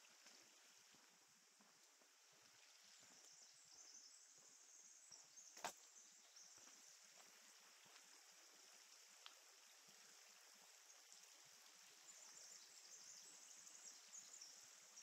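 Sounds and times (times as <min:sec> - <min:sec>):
faint forest ambience hiss: 0:00.0 - 0:15.0.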